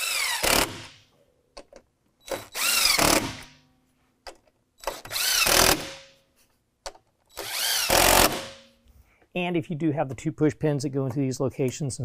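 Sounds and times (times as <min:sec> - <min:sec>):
cordless drill motor whirring: 0:00.0 - 0:00.9, 0:02.3 - 0:03.4, 0:04.8 - 0:05.8, 0:07.3 - 0:08.4.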